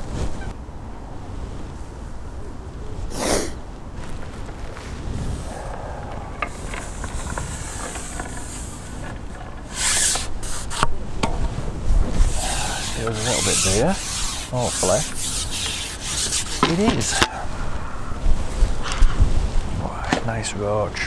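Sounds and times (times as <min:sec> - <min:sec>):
rubbing and scraping handling noise: 0:04.0 - 0:17.6
short gliding squeaks: 0:06.2 - 0:10.8, 0:12.2 - 0:17.1.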